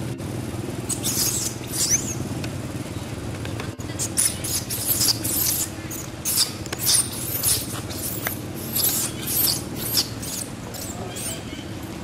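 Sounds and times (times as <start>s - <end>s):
steady low hum: 0.0s - 12.0s
high-pitched squeaks and chirps: 0.9s - 2.2s, 3.9s - 11.6s.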